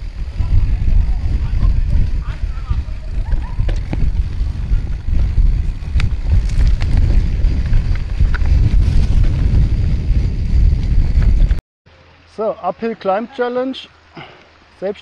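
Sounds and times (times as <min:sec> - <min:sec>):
bike clicks and rattles: 0:00.0 - 0:11.6
wind buffeting microphone: 0:00.0 - 0:11.6.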